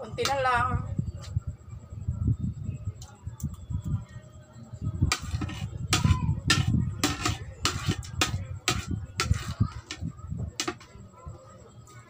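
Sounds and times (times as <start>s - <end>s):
cutlery scraping on a plate: 5.1s - 10.9s.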